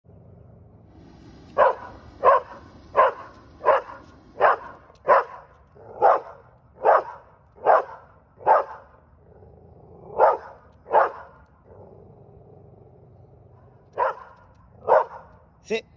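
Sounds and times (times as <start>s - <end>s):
dog barking: 1.5s - 9.0s, 10.1s - 11.4s, 13.9s - 15.3s.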